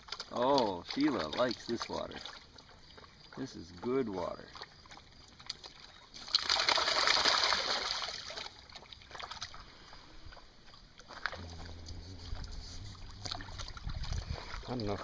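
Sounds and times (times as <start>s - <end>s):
dog splashing in water: 0.0s - 15.0s
water sloshes and drips: 0.0s - 15.0s
low steady hum: 11.2s - 15.0s.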